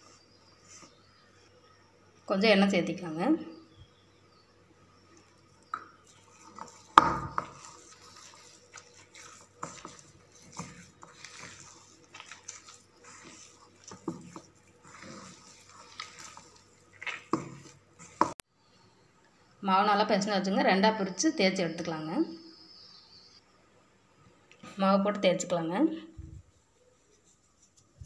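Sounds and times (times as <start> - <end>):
hands kneading dough: 5.2 - 18.4.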